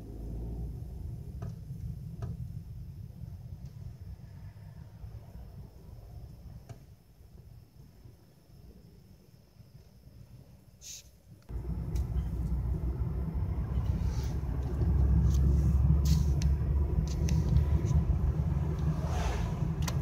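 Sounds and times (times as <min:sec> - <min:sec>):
car rumble from inside cabin: 0:11.5 - 0:20.0.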